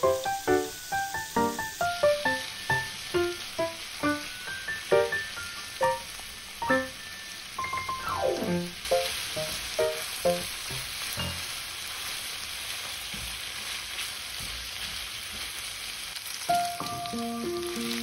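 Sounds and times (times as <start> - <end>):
melody: 0.0 - 10.5, 16.6 - 18.0
meat sizzling in a frying pan: 0.0 - 18.0
short musical notes: 6.6 - 10.4.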